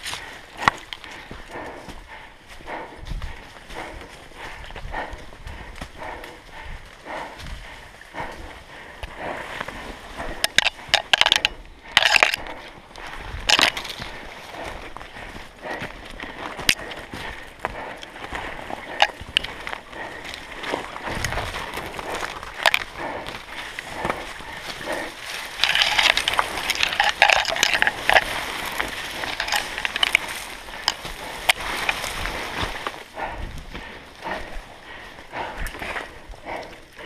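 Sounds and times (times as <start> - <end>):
branches scraping and twigs snapping: 9.0 - 34.6
footsteps crunching dry leaves: 20.8 - 33.1.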